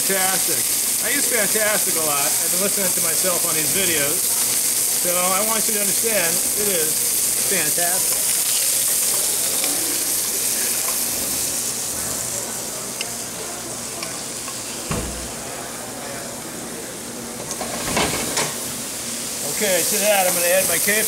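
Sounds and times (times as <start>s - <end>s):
oil sizzling in a pan: 0.0s - 15.4s, 17.5s - 21.0s
dull thump: 14.9s - 15.3s.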